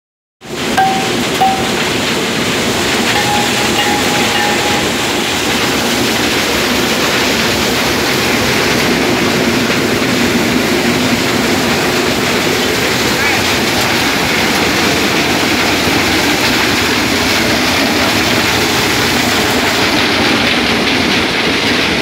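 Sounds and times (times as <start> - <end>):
conveyor rollers clattering: 0.8 - 8.4.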